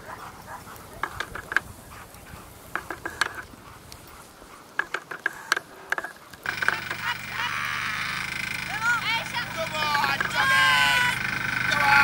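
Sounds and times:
dogs yipping and barking: 0.0 - 2.1, 5.6 - 12.0
loud steady noise with hum: 6.5 - 12.0.

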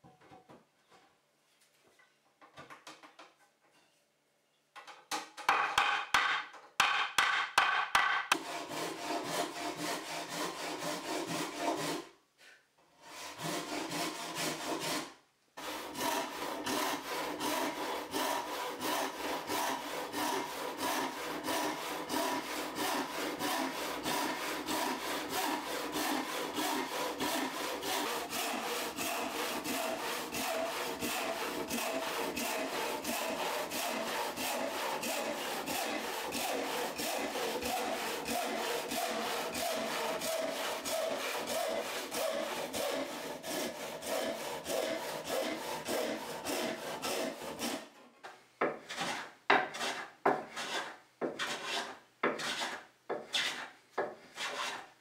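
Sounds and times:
sharp knocks: 5.4 - 8.4
handsaw cutting wood: 7.7 - 12.1, 12.9 - 54.9.

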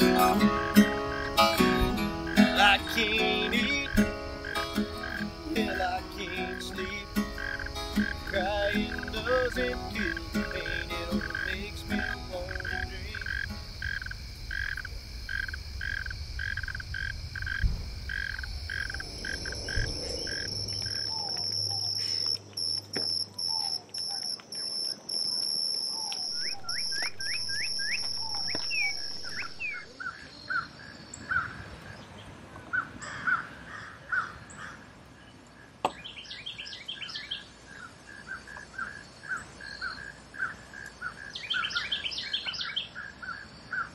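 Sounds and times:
birds chirping and calling: 0.0 - 24.8, 25.8 - 34.8, 35.9 - 43.9
frogs calling in pulsing chorus: 0.0 - 31.9, 36.6 - 43.9
insect drone: 0.0 - 32.1
low rumble: 14.4 - 21.0
thump: 17.6 - 18.0.

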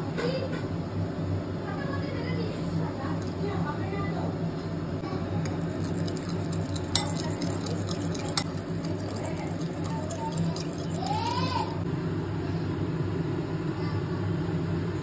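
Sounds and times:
steady low hum: 4.9 - 13.6
fork beating eggs in bowl: 5.4 - 11.8.

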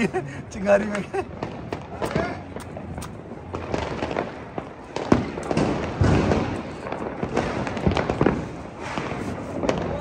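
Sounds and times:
firecracker pops and crackles: 0.8 - 10.0
firecracker bangs: 1.2 - 10.0.

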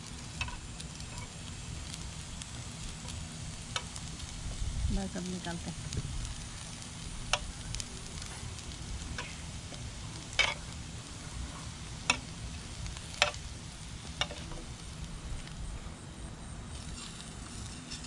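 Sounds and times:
food sizzling in a skillet: 0.0 - 18.0
utensil clicking on pan: 0.4 - 1.2, 10.3 - 10.7, 13.1 - 13.5, 14.2 - 14.6.

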